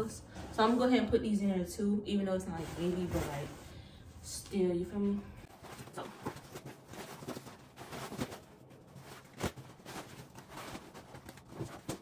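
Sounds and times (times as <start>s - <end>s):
fabric rustling: 2.5s - 3.8s, 5.4s - 12.0s.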